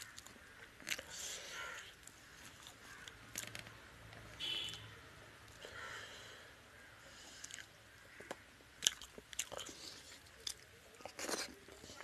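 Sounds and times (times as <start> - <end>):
chewing food: 2.0 - 3.7, 7.2 - 12.0.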